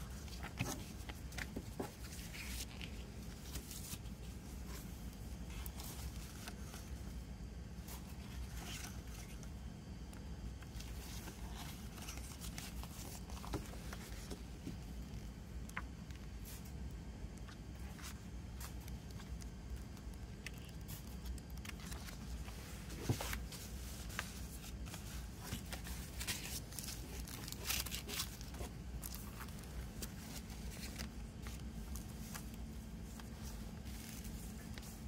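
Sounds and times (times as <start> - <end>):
booklet pages flipping: 0.0 - 7.2, 7.8 - 35.0
steady low hum: 0.0 - 35.0
plastic sleeves sliding: 20.5 - 35.0.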